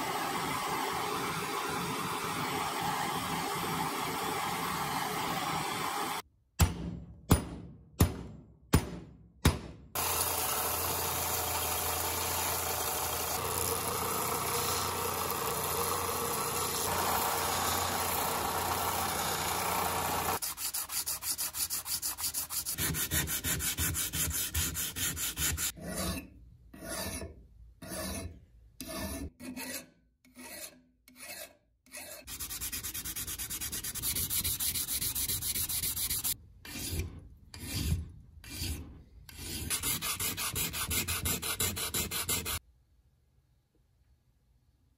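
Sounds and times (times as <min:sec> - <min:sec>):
belt sander grinding steel: 0:10.0 - 0:21.1
hand file rasping on steel: 0:20.2 - 0:42.6.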